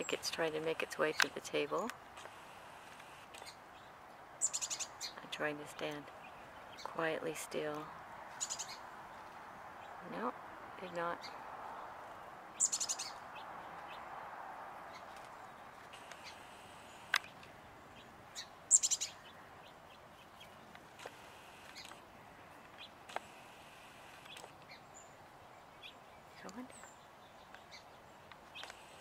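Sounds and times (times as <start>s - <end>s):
chickadee calling: 0.0s - 8.9s, 12.5s - 14.1s, 15.9s - 25.2s
sharp single clicks: 17.0s - 17.5s.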